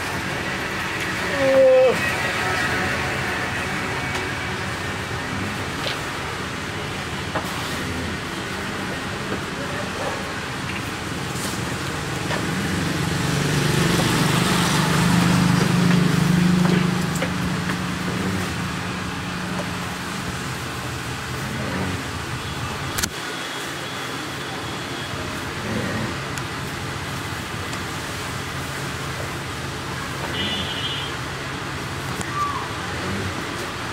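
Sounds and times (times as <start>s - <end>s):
steady background rush: 0.0s - 25.6s.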